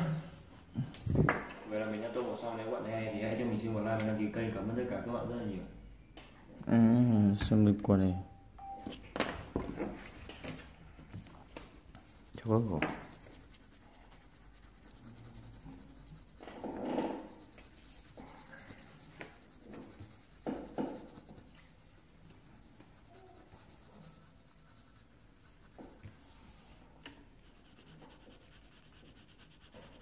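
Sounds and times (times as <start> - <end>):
pencil scratching on paper: 11.2 - 30.0.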